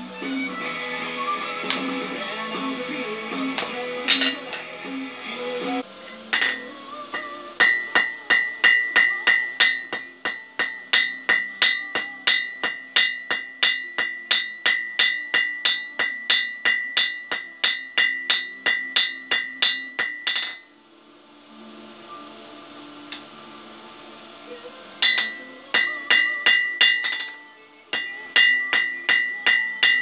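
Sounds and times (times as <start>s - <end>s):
hammer striking steel on anvil: 1.6s - 2.0s, 3.5s - 4.7s, 6.3s - 20.7s, 23.1s - 23.3s, 25.0s - 30.0s.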